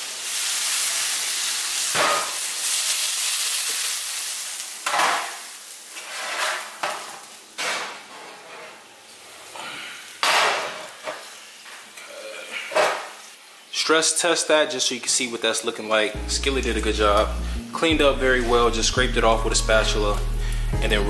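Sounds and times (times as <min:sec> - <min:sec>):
sizzling hiss: 0:00.0 - 0:07.6, 0:08.9 - 0:21.0
metal pans clanking on stovetop: 0:01.9 - 0:02.4, 0:04.8 - 0:05.4, 0:06.0 - 0:08.8, 0:10.2 - 0:11.3.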